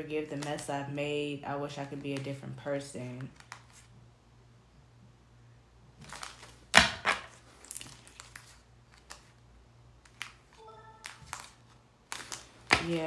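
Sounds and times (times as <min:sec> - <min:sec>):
cards clicking on table: 0:10.0 - 0:13.0.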